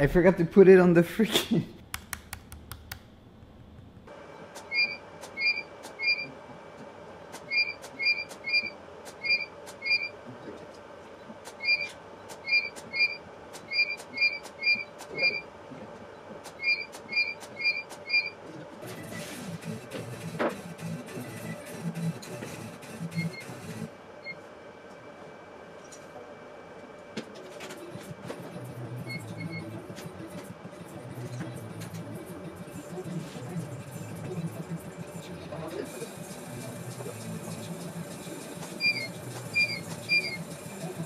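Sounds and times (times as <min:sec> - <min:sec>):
faint hum: 0:00.0 - 0:20.0, 0:23.1 - 0:41.0
double electronic beep: 0:04.7 - 0:06.3, 0:07.5 - 0:10.1, 0:12.5 - 0:15.4.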